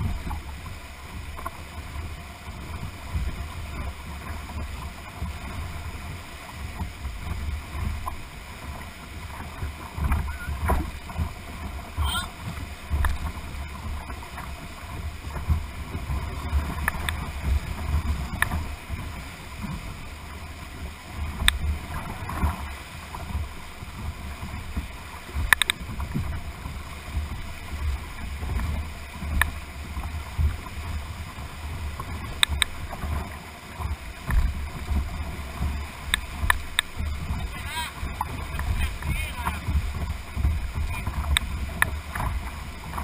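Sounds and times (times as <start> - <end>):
rushing whitewater: 0.0 - 43.0
sharp knocks on hull: 10.0 - 11.4.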